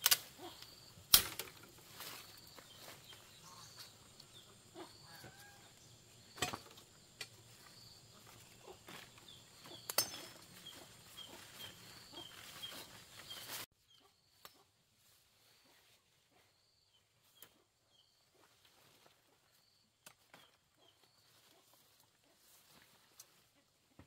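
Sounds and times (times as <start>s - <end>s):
stems snapping: 0.0s - 2.2s
rustling leaves: 0.0s - 4.2s, 6.8s - 13.7s.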